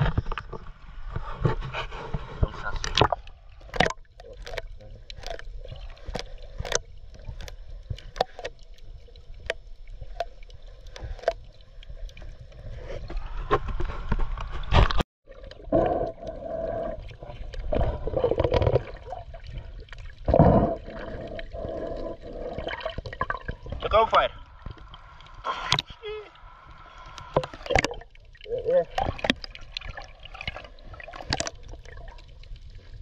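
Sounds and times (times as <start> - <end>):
muffled water surges: 0.0 - 33.0
sharp clicks underwater: 2.8 - 12.7, 22.6 - 26.0, 26.8 - 32.7.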